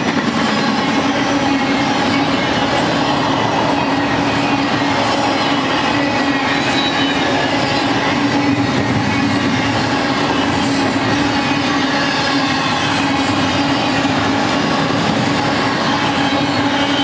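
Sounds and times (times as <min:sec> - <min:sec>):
steel wheels on rails: 0:00.0 - 0:17.0.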